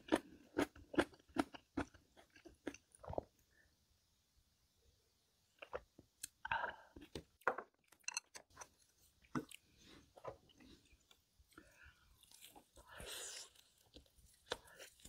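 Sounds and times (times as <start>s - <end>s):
person chewing and crunching food: 0.0s - 3.4s, 7.8s - 15.0s.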